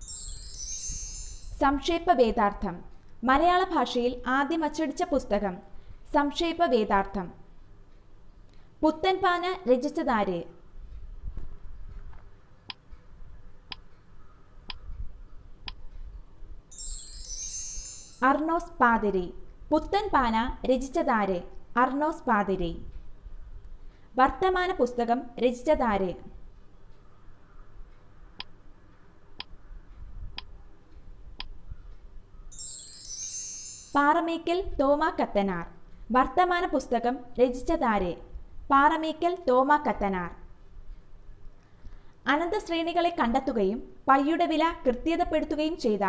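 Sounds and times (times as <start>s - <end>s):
bright high chime: 0.0s - 1.6s, 16.7s - 18.4s, 32.5s - 34.2s
high-pitched time-up sound effect: 0.0s - 1.6s, 16.7s - 18.2s, 32.5s - 34.0s
timer ticks: 15.6s - 16.1s.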